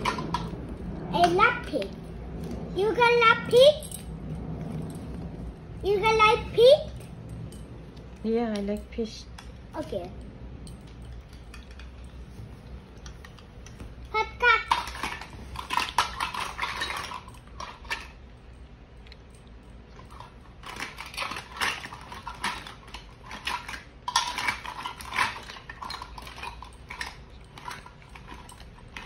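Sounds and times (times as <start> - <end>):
toy dishes clattering: 0.0 - 1.9, 10.7 - 12.2, 13.0 - 18.2, 20.0 - 29.0.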